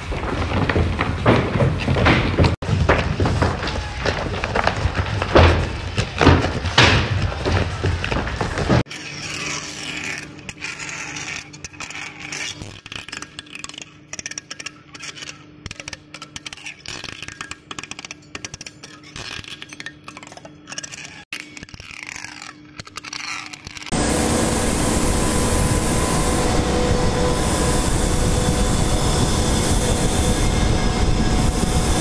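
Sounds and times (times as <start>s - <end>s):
lathe tool scraping metal: 23.9s - 32.0s
low machine hum: 23.9s - 32.0s.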